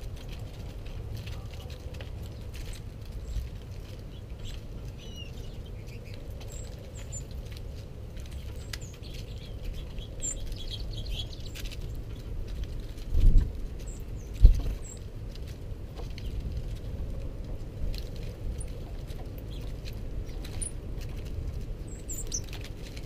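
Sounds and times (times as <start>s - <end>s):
birds pecking seed tapping: 0.0s - 23.0s
low steady rumble: 0.0s - 23.0s
high bird chirps: 21.9s - 22.5s.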